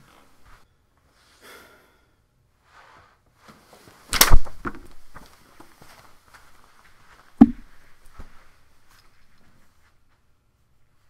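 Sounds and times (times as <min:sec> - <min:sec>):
small bumps: 0:03.4 - 0:09.7.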